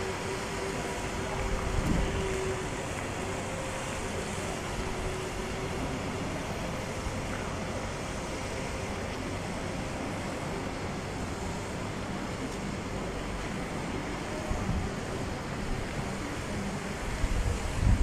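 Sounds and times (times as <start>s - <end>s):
wind on microphone: 1.2s - 2.9s, 14.5s - 18.0s.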